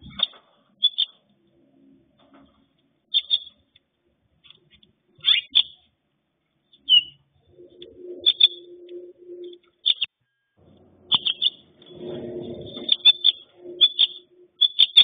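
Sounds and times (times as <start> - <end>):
finch chirping: 0.0 - 1.2, 3.1 - 3.6, 4.7 - 5.9, 6.7 - 10.1, 11.0 - 15.0
low steady drone: 7.2 - 9.8, 10.6 - 14.7.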